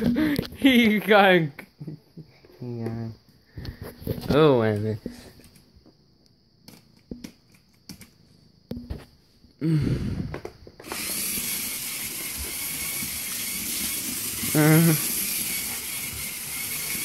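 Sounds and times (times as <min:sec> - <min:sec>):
toy train motor whirring: 0:10.8 - 0:17.0.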